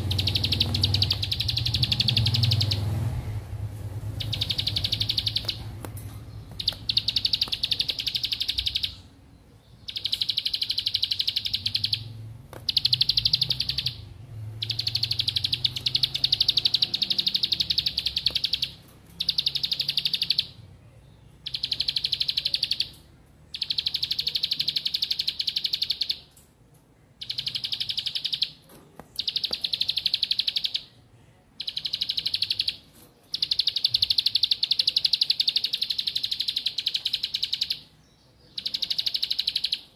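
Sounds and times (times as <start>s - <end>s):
bird trilling song: 0.0s - 26.4s, 27.2s - 31.0s, 31.6s - 39.9s.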